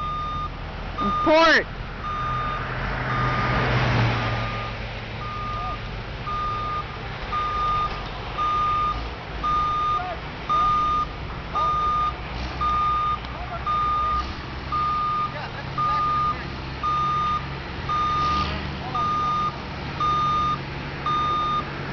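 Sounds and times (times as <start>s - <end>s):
electronic warning beeper: 0.0s - 1.5s
vehicle road noise: 0.0s - 21.9s.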